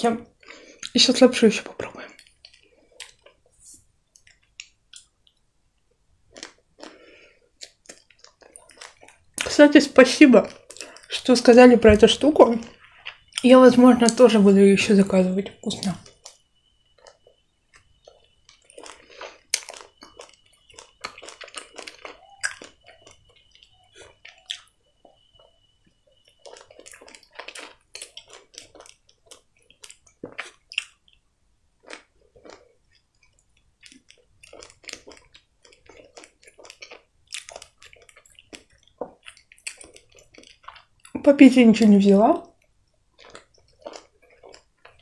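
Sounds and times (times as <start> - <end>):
crunchy bread chewing: 1.6 - 9.5, 10.3 - 11.2, 15.8 - 41.2, 42.4 - 45.0
wet mouth sounds: 17.8 - 24.7, 26.5 - 31.2.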